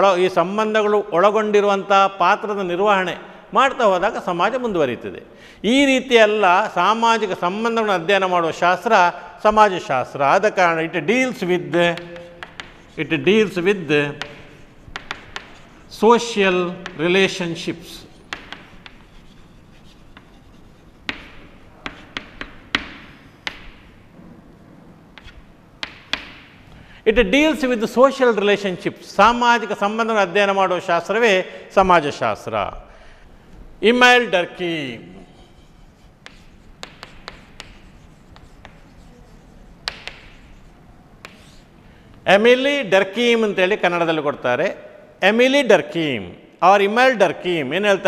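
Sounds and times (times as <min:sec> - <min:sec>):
chalk scraping: 0:11.7 - 0:23.8, 0:25.2 - 0:26.4, 0:35.1 - 0:41.8
chalk tapping on chalkboard: 0:11.8 - 0:24.0, 0:25.2 - 0:26.6, 0:35.2 - 0:41.7.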